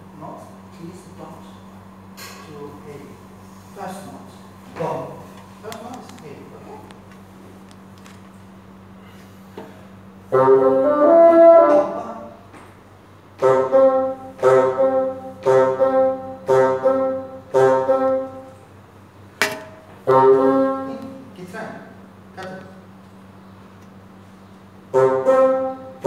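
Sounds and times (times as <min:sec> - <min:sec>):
bassoon playing: 0:10.3 - 0:12.5, 0:13.4 - 0:18.6, 0:20.0 - 0:21.3, 0:24.9 - 0:26.0.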